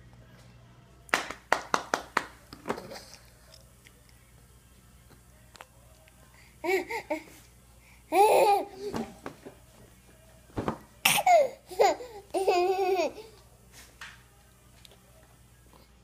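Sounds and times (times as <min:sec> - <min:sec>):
baby laughing and babbling: 0:06.6 - 0:07.3, 0:08.1 - 0:09.1, 0:11.1 - 0:13.4.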